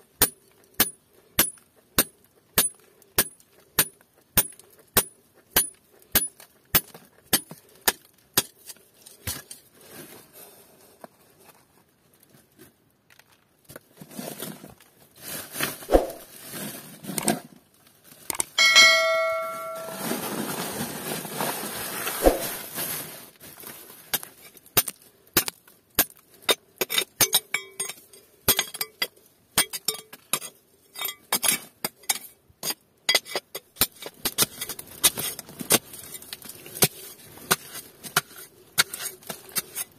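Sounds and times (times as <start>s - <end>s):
rustling scrape: 8.6s - 12.7s, 13.9s - 17.5s, 18.6s - 24.6s, 34.0s - 39.9s
ringing metallic clang: 18.6s - 20.2s.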